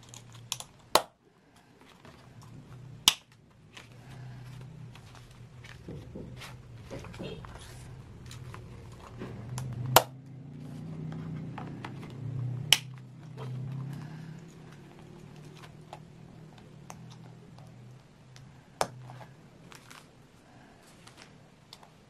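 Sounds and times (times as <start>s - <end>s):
paper pages rustling: 3.5s - 9.6s, 19.1s - 20.2s.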